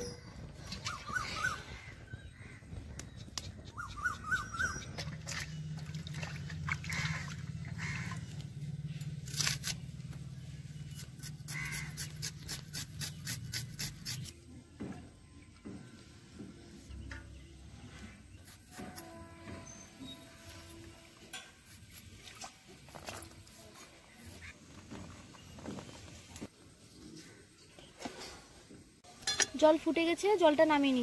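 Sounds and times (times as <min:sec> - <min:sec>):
bird chirping: 0:00.0 - 0:05.8
low steady rumble: 0:04.0 - 0:11.3
onion being sliced on blade: 0:09.2 - 0:09.8, 0:10.9 - 0:14.4.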